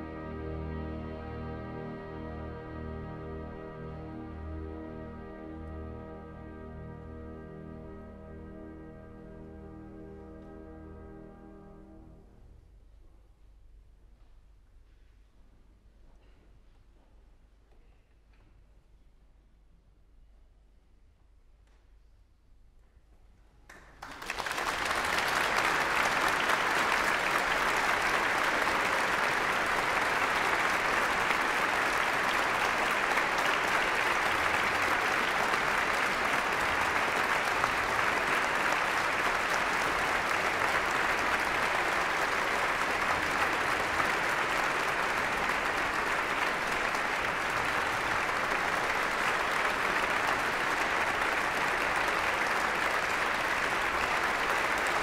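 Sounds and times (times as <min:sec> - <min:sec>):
audience applauding: 0:23.7 - 0:55.0.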